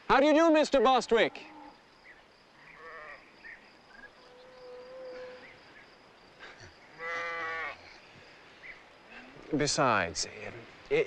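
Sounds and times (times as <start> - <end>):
sheep bleating: 2.8 - 3.2, 7.0 - 8.0.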